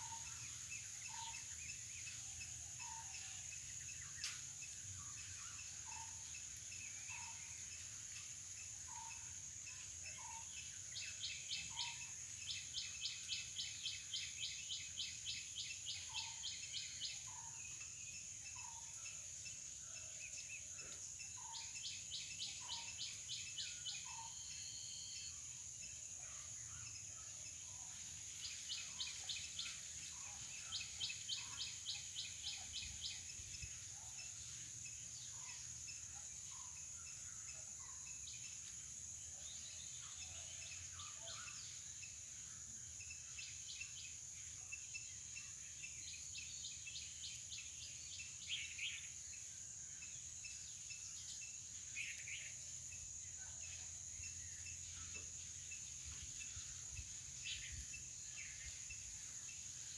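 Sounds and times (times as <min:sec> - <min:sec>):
rapid pulsed insect chirps: 0:00.0 - 0:59.9
high-pitched insect drone: 0:22.9 - 0:25.5.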